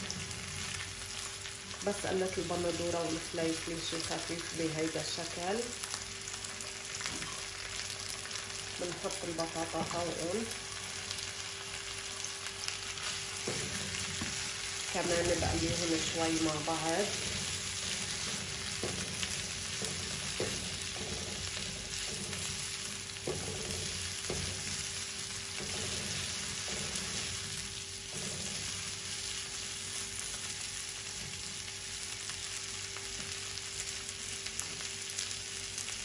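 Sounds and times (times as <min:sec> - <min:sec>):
vegetables sizzling in a frying pan: 0:00.0 - 0:36.0
spatula scraping and knocking pan: 0:13.0 - 0:29.6.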